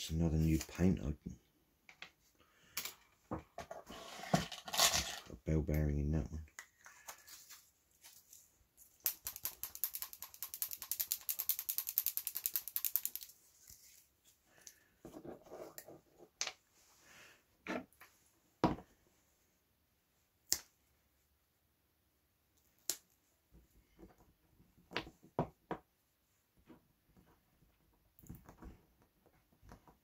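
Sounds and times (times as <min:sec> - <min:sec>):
ball rattling in paint jar: 0:09.0 - 0:13.3.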